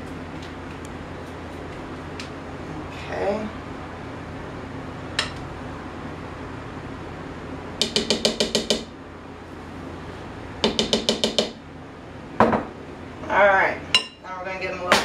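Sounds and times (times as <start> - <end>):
cake pans knocked on counter: 12.4 - 12.7.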